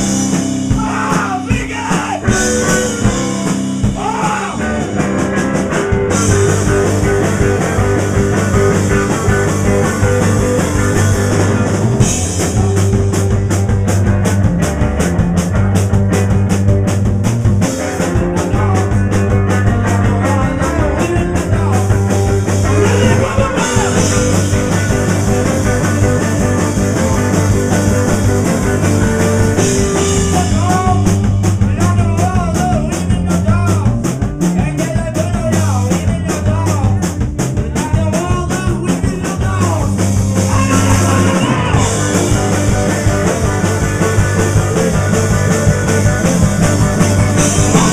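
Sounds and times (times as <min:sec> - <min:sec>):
drum kit beat: 0:00.0 - 0:47.9
electric guitar: 0:00.0 - 0:47.9
heavy low notes: 0:00.0 - 0:47.9.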